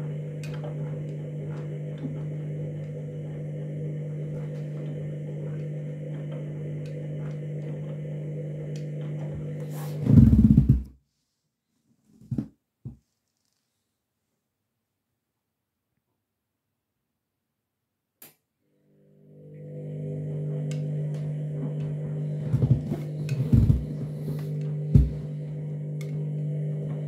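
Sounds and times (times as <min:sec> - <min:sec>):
washing machine humming: 0:00.0 - 0:10.9, 0:19.0 - 0:27.0
washing machine rumble: 0:00.0 - 0:10.9, 0:19.6 - 0:27.0.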